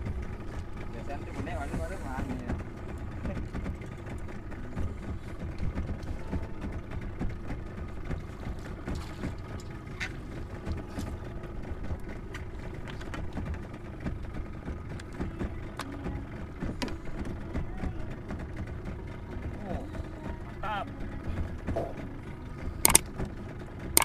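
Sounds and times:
steady low rumble: 0.0s - 24.0s
fishing reel clicks and rattles: 22.8s - 23.1s.

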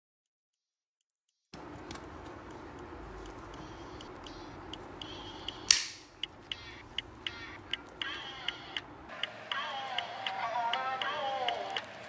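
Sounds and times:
binder mechanism snapping shut: 5.7s - 6.1s.

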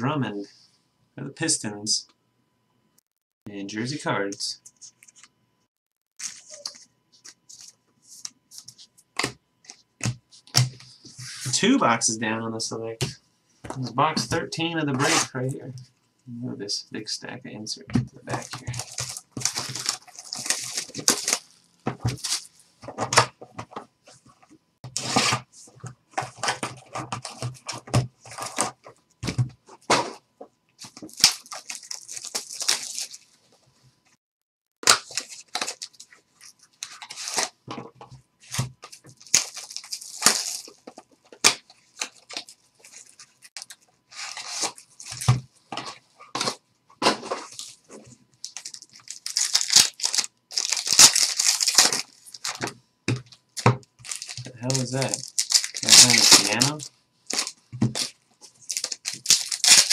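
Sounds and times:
plastic wrappers crinkling and tearing: 6.2s - 7.8s, 18.3s - 22.6s, 30.8s - 33.4s, 34.8s - 37.5s, 38.4s - 45.4s, 47.4s - 59.9s.

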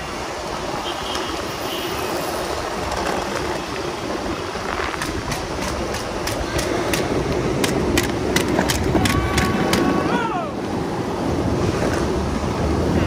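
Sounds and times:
longboard wheels rolling on pavement: 0.0s - 13.0s
sharp clacks: 4.8s - 9.9s.

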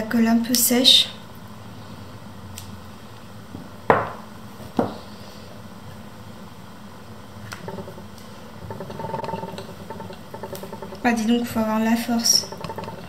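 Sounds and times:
objects clacking against ceramic bowl: 7.6s - 13.0s.

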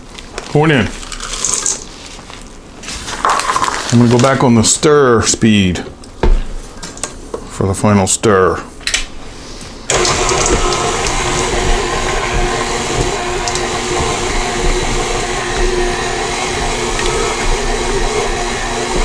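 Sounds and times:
stand mixer motor hum: 9.9s - 19.0s.

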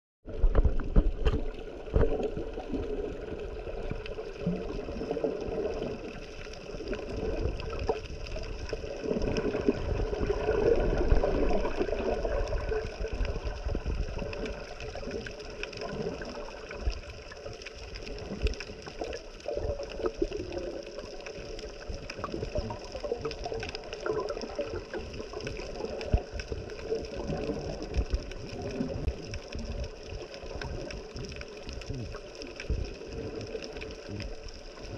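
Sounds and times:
water sloshing and gurgling: 0.2s - 34.9s
small clicks and crackles: 0.3s - 34.9s.

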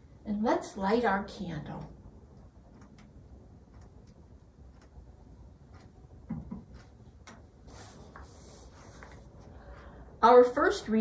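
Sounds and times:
soft knocks: 6.3s - 6.8s.

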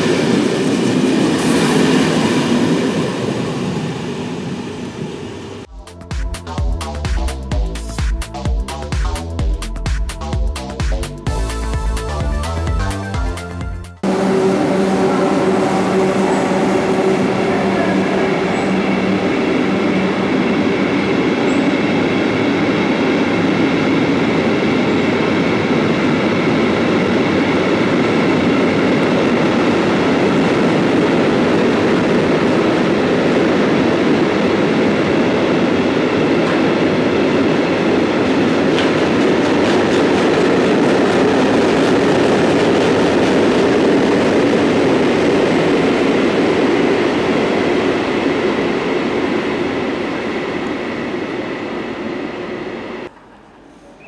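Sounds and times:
locomotive hum: 11.4s - 54.0s.

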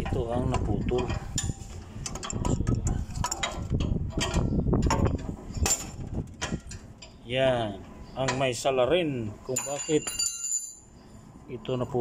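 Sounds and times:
metal clinks and knocks: 0.0s - 7.2s, 9.5s - 10.9s.

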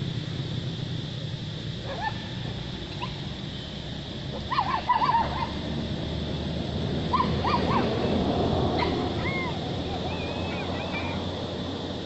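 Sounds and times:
monkey whimper calls: 8.8s - 11.2s.

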